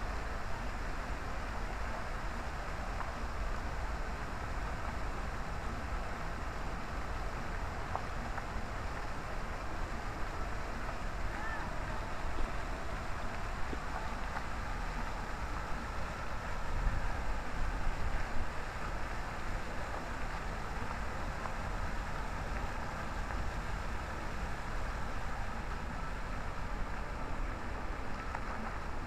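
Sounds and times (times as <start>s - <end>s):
wind rumble on microphone: 0.0s - 29.0s
fountain jets splashing into basin: 0.1s - 29.0s.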